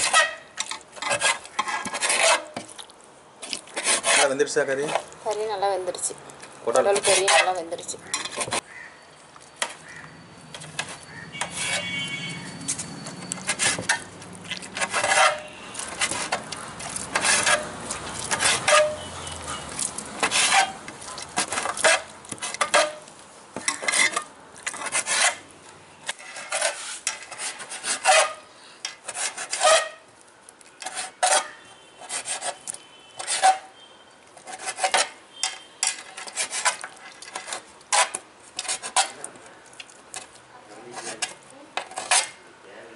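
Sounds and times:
knife knocking and scraping metal plate: 6.8s - 8.6s, 10.5s - 12.1s, 14.7s - 16.5s, 18.3s - 19.1s, 21.4s - 25.4s, 26.1s - 30.0s.

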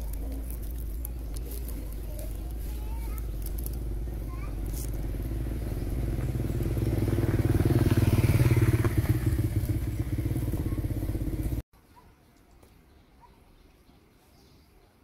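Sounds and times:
vehicle engine running: 0.6s - 11.6s.

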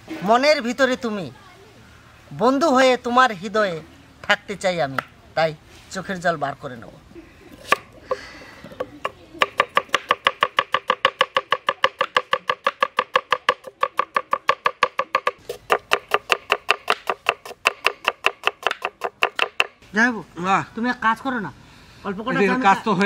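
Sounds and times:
knife chopping on wooden board: 8.8s - 19.8s.

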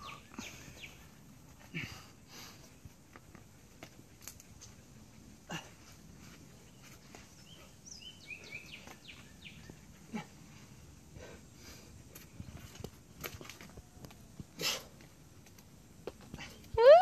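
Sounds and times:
bird chirping: 0.0s - 1.3s, 6.2s - 10.1s
faint outdoor ambience: 0.0s - 17.0s.

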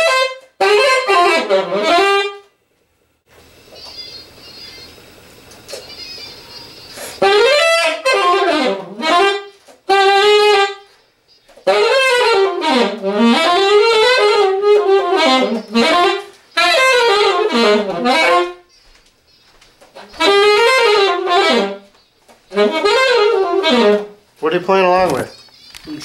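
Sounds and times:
alto saxophone solo: 0.0s - 2.5s, 7.0s - 10.9s, 11.6s - 18.7s, 20.1s - 21.9s, 22.5s - 24.2s.

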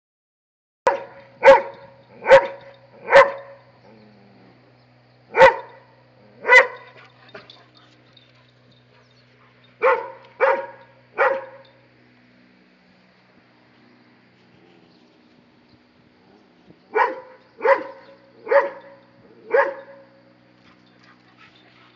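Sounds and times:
dog barking: 0.9s - 3.7s, 5.3s - 5.8s, 6.4s - 7.8s, 9.8s - 11.6s, 16.9s - 20.1s.

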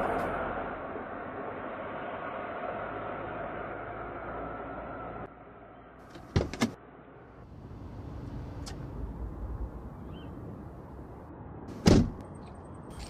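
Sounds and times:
low street rumble: 0.0s - 13.0s
car door shutting: 11.7s - 12.2s.

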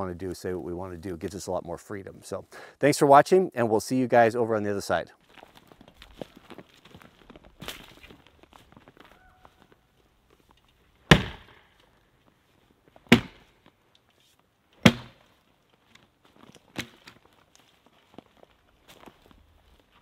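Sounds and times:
axe chopping into log: 11.1s - 11.6s, 13.1s - 13.5s, 14.8s - 15.2s.

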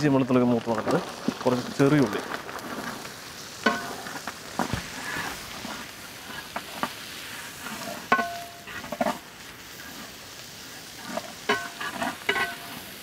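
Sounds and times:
frying hiss: 0.0s - 13.0s
metal ladle clanking in a pan: 8.1s - 8.6s, 11.5s - 12.7s.

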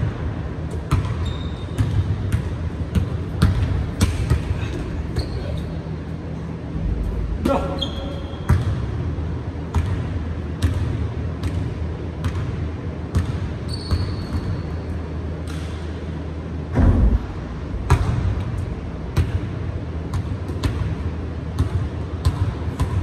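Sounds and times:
heavy thump: 16.7s - 18.3s.

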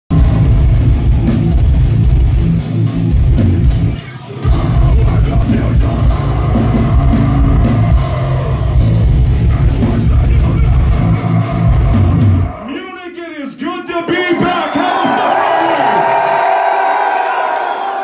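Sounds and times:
drum kit: 0.1s - 12.6s
heavy distorted guitars: 0.1s - 12.8s.

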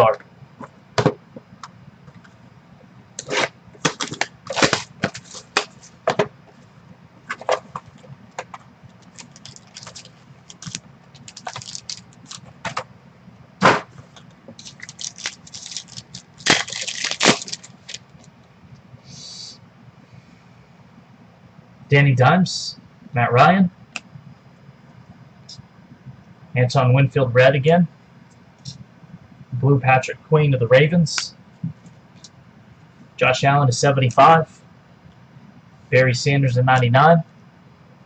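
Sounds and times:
wrapper snap: 9.0s - 12.5s, 14.6s - 18.1s
foil wrapper crinkling: 9.0s - 12.6s, 14.6s - 18.2s.

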